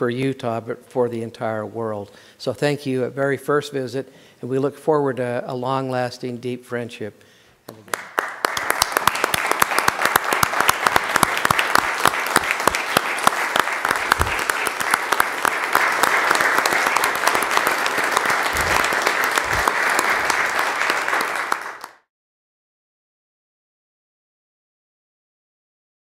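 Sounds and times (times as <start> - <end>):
crowd applauding: 7.7 - 22.1.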